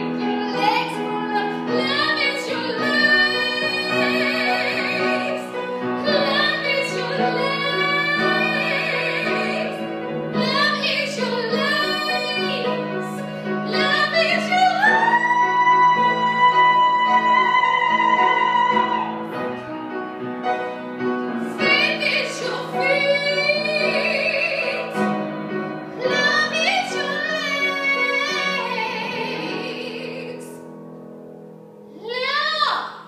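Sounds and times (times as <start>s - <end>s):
woman singing: 0.0s - 19.6s, 21.4s - 25.2s, 26.0s - 30.7s.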